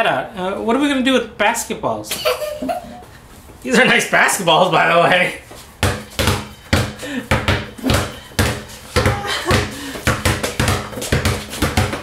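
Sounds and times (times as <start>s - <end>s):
basketballs bouncing on hard floor: 5.8s - 12.0s.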